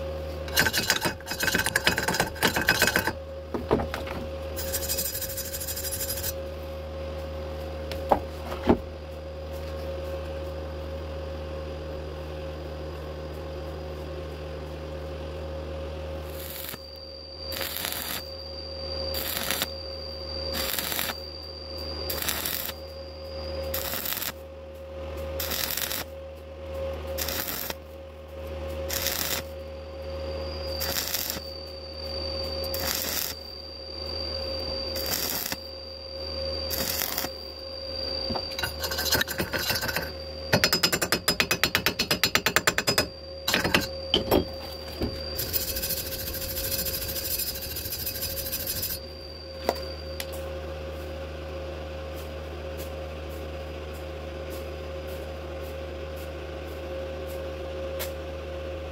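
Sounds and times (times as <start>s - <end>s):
welding machine whine: 0.0s - 58.9s
wire brush scrubbing metal: 0.5s - 3.2s, 4.6s - 6.4s, 45.4s - 49.0s
welding arc crackling: 4.6s - 6.4s, 16.3s - 16.8s, 17.5s - 18.3s, 19.2s - 19.7s, 20.6s - 21.2s, 22.1s - 22.8s, 23.7s - 24.4s, 25.4s - 26.1s, 27.2s - 27.8s, 28.9s - 29.5s, 30.8s - 31.4s, 32.7s - 33.4s, 35.0s - 35.6s, 36.7s - 37.3s.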